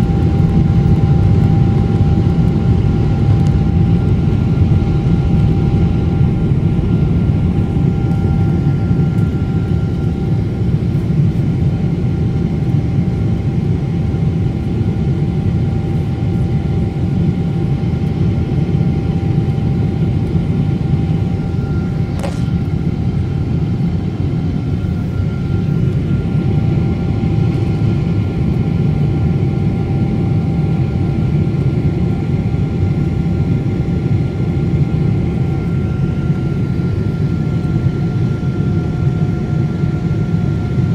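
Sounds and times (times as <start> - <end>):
aircraft cabin engine rumble: 0.0 - 40.9
faint steady whining tones: 0.0 - 40.9
sharp click: 22.2 - 22.6.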